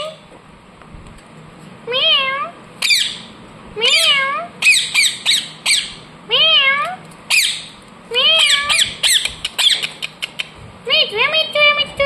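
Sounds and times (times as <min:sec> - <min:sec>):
parakeet wavering meow-like calls: 0:01.9 - 0:09.8
parakeet squawking: 0:02.1 - 0:10.5.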